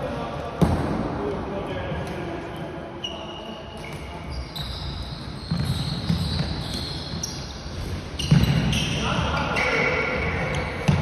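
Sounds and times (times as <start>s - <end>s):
shoes squeaking on floor: 3.0s - 11.0s.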